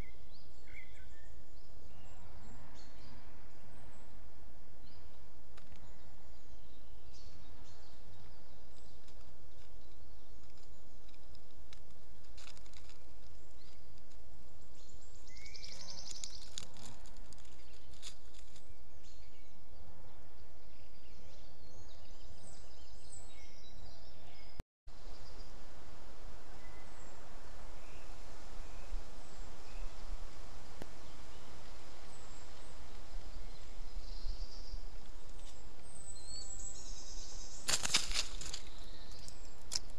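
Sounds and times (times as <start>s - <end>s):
small birds chirping: 4.8s - 19.8s, 26.4s - 39.9s.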